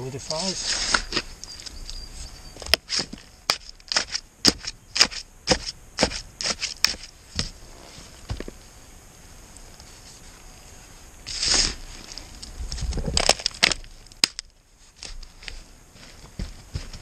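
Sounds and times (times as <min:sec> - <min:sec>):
shovel scraping soil and pipe: 0:00.0 - 0:08.3, 0:11.2 - 0:13.7.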